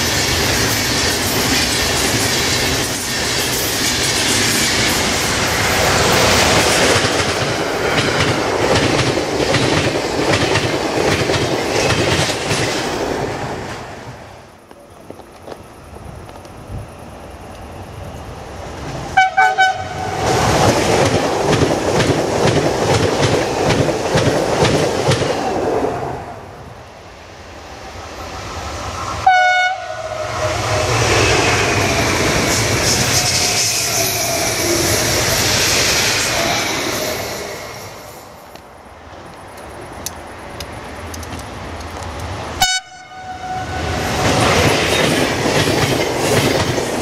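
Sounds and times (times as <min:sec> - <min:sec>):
train wheels clickety-clack: 0:00.0 - 0:16.8, 0:20.2 - 0:25.5, 0:30.7 - 0:37.2, 0:39.2 - 0:42.4, 0:44.0 - 0:47.0
train passing with whine: 0:00.0 - 0:47.0
train horn toots: 0:19.2 - 0:20.3, 0:29.2 - 0:31.8, 0:42.6 - 0:44.1.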